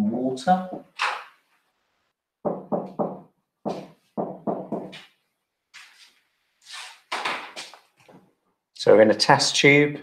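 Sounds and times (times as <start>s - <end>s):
marker pen writing on whiteboard: 2.4s - 5.2s.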